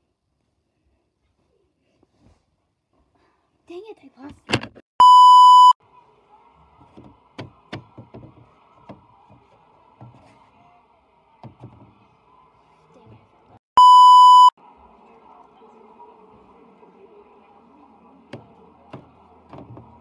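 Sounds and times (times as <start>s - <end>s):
test-tone beep: 5.0s - 5.8s, 13.8s - 14.5s
plastic figurines tapping: 6.8s - 9.4s.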